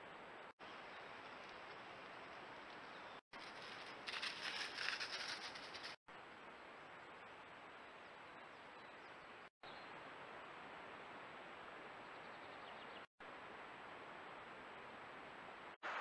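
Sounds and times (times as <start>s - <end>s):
deer stepping through dry leaves: 3.4s - 6.0s.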